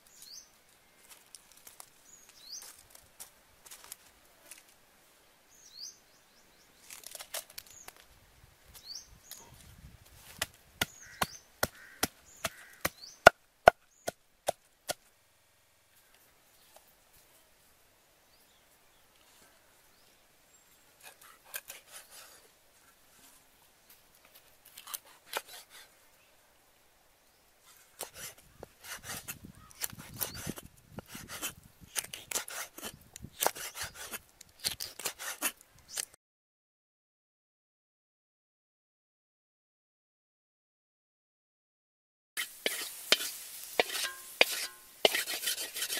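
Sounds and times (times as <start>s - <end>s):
cleaver chopping on wooden block: 10.4s - 15.0s
pestle pounding in wooden mortar: 10.8s - 13.8s.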